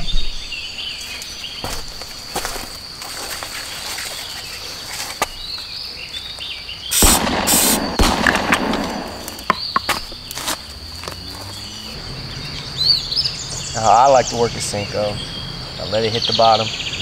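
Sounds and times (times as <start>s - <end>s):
loud bursts of noise: 6.9s - 9.6s.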